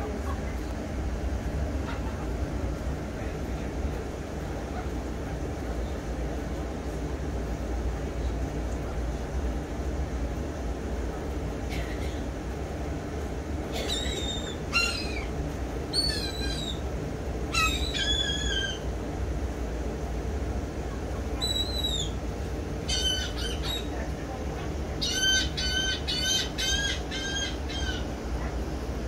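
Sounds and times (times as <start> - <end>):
gulls calling: 0.0 - 6.2, 13.5 - 19.3, 20.7 - 29.0
steady low rumble: 0.0 - 13.8.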